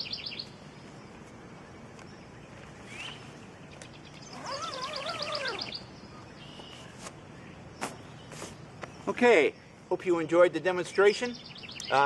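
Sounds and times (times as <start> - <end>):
rapid high bird trill: 0.0 - 0.6, 2.9 - 7.0
bird chirping: 0.0 - 12.0
lower wavering bird call: 4.0 - 6.9.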